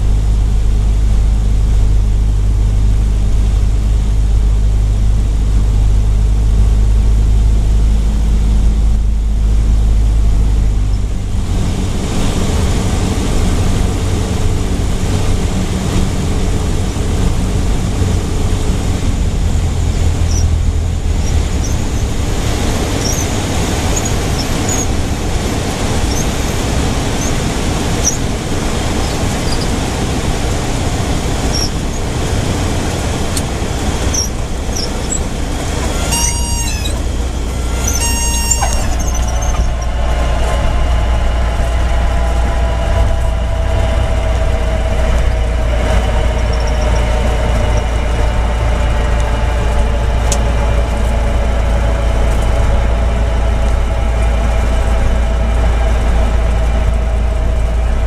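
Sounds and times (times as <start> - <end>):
low rumble: 0.0 - 58.0
plane engine and airflow drone: 0.0 - 58.0
steady whine: 0.0 - 58.0
short squeals: 19.8 - 40.8.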